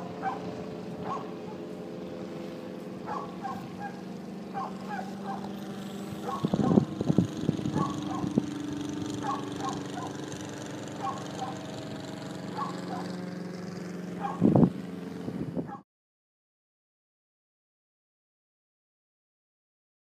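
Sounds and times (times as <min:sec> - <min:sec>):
engine drone: 0:00.0 - 0:15.8
bird calls: 0:00.2 - 0:01.6, 0:03.0 - 0:05.6, 0:07.7 - 0:08.3.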